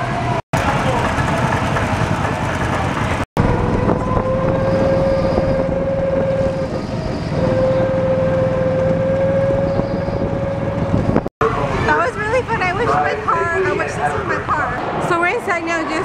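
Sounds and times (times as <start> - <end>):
go-kart engine droning: 0.0 - 13.4.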